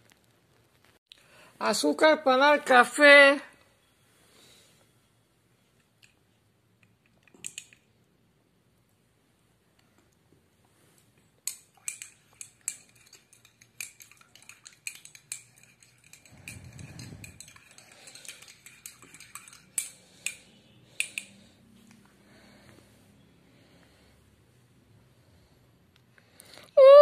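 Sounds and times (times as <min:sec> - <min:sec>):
spoon clinking against cup: 0:11.5 - 0:21.3.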